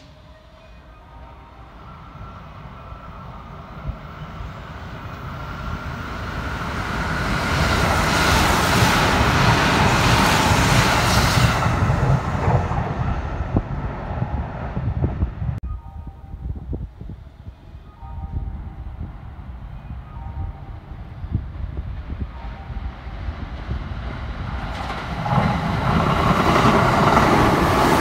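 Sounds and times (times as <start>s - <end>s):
train wheels rumbling on rails: 2.2s - 15.6s, 20.7s - 28.0s.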